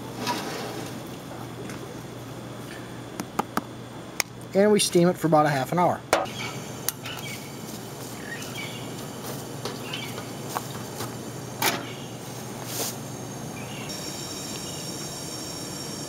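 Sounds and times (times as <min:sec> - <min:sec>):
steady hum: 0:00.0 - 0:16.0
faint bird chirps: 0:06.3 - 0:08.9.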